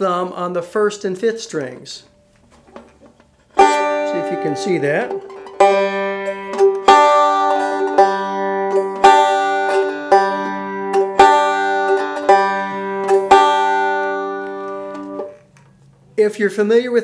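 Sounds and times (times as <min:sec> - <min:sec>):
banjo picked slowly: 0:03.5 - 0:15.4.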